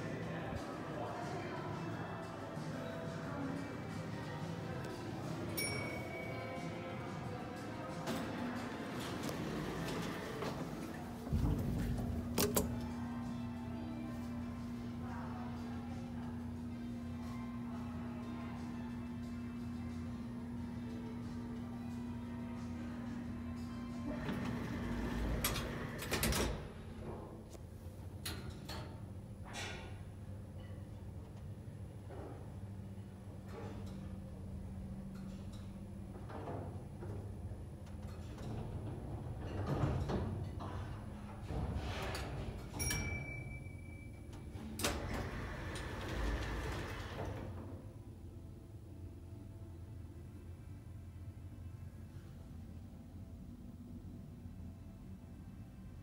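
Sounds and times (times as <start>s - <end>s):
lift doors sliding open: 8.0s - 13.2s, 21.4s - 27.5s, 35.2s - 43.6s, 44.3s - 48.0s
lift hum: 8.3s - 28.3s.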